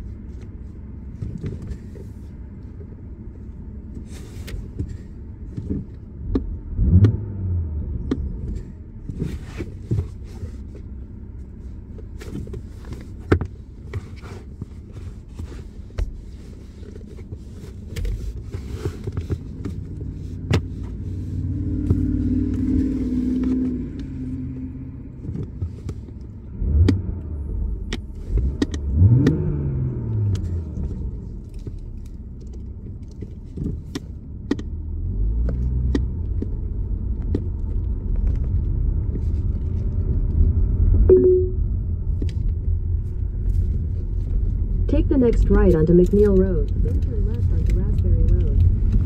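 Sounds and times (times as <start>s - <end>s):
car engine revving: 6.2s - 9.7s, 19.4s - 25.4s, 26.4s - 32.0s.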